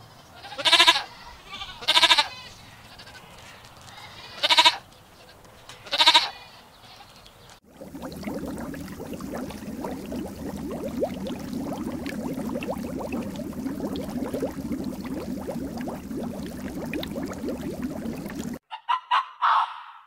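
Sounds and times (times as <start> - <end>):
water bubbling and splashing: 7.6 - 18.6.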